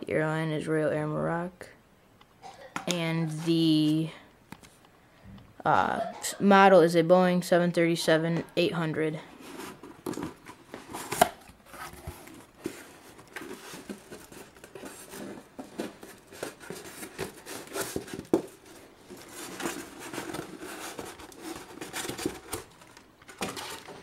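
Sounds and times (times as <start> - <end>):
cardboard and foam scraping: 9.3 - 24.0.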